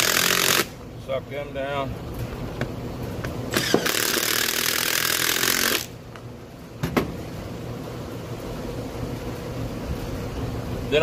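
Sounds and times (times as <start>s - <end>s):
impact wrench running: 0.0s - 0.8s, 3.5s - 6.0s.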